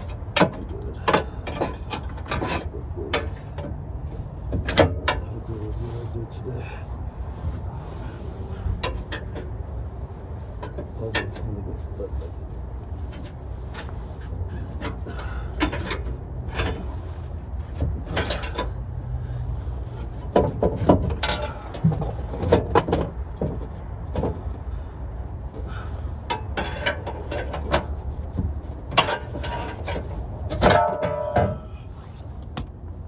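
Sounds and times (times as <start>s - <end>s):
hand tools knocking on metal: 30.6s - 31.7s.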